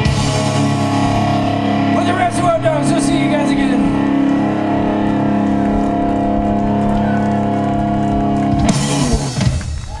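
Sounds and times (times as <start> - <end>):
electric guitars and bass chord: 0.0 - 10.0
drums and cymbals crash: 8.6 - 10.0.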